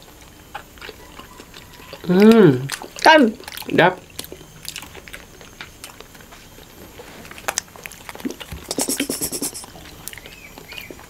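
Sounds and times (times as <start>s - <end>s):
slurping jelly: 6.9s - 11.0s
wet mouth clicks: 7.4s - 11.0s.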